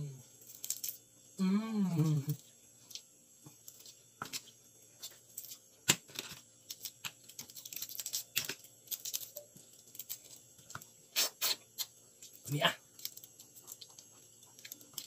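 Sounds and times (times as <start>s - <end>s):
crab shell cracking: 0.4s - 1.0s, 5.3s - 10.9s, 11.8s - 15.0s.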